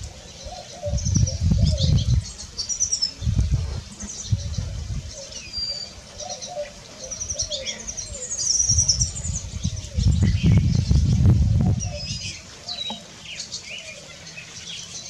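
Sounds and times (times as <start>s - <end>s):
dove cooing: 0.0s - 3.2s, 3.8s - 14.5s
wind gusts on microphone: 0.0s - 5.4s, 8.0s - 12.5s
small birds chirping: 0.0s - 15.0s.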